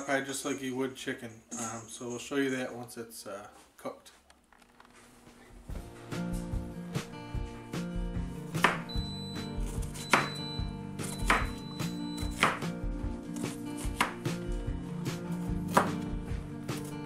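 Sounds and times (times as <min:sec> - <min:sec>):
knife chopping onion on board: 0:08.5 - 0:08.9, 0:09.6 - 0:10.4, 0:11.0 - 0:11.6, 0:12.2 - 0:14.5, 0:15.1 - 0:17.0.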